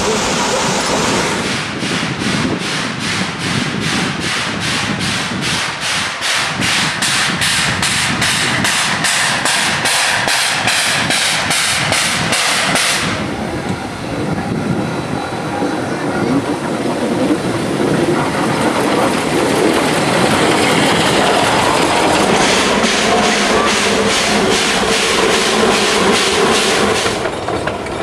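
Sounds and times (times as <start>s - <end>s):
steam locomotive chuffing: 0.0s - 28.0s
low rumble: 18.3s - 27.0s.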